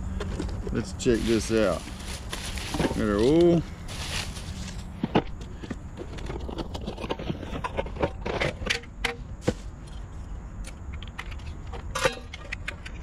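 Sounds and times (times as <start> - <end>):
cardboard rustling: 0.3 - 8.3
clicks and knocks of handling: 5.0 - 13.0.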